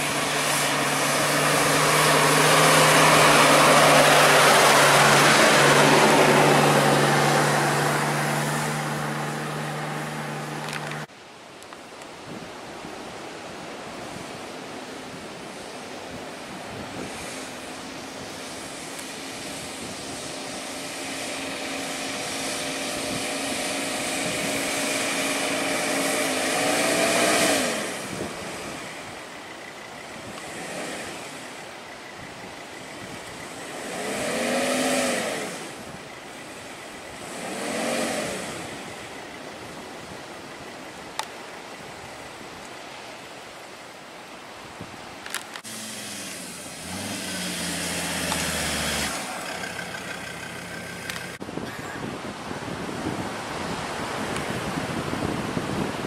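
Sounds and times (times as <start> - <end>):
second vehicle engine: 0.0 - 11.1, 45.3 - 52.2
truck engine revving: 0.0 - 11.1, 18.9 - 28.8, 33.6 - 35.9, 37.1 - 38.9, 45.6 - 51.4.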